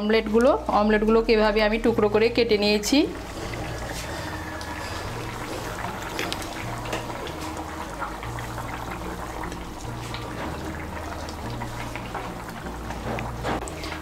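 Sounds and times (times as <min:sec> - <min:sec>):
gravy bubbling and popping: 0:02.8 - 0:14.0.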